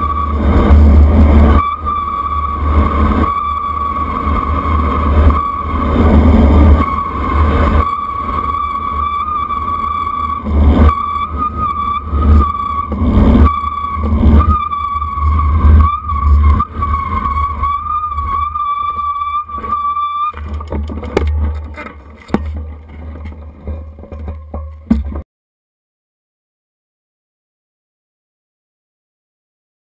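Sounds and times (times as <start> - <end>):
high wavering whine: 0.0 - 25.2
bicycle rattles and clicks: 18.7 - 25.2.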